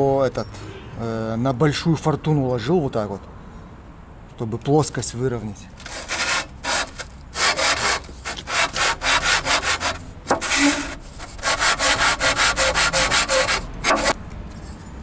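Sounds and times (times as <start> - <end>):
metal rasping on sandpaper: 5.8 - 14.8.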